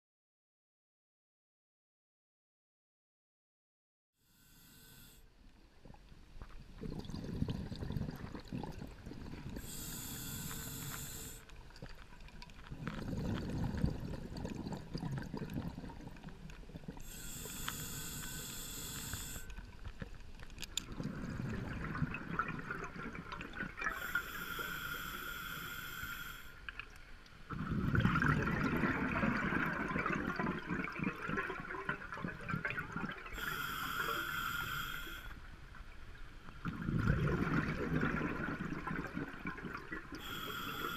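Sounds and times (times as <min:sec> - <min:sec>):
regulator inhale hissing: 0:04.3 - 0:05.3, 0:09.6 - 0:11.5, 0:17.0 - 0:19.6, 0:23.9 - 0:26.6, 0:33.3 - 0:35.4, 0:40.2 - 0:40.9
exhaled air bubbling: 0:05.8 - 0:20.1, 0:20.7 - 0:26.3, 0:26.9 - 0:35.2, 0:36.5 - 0:40.9.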